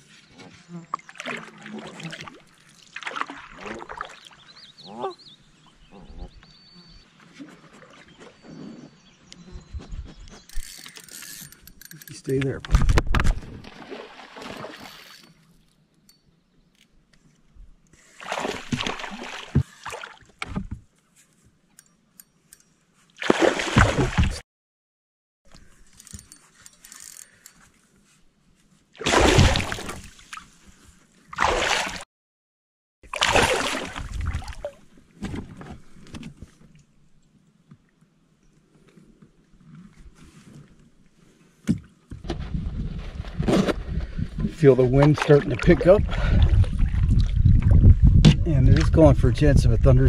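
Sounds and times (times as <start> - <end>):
fish splashing in water: 18.2 - 20.2, 23.2 - 24.4, 29.0 - 30.2, 33.1 - 34.8.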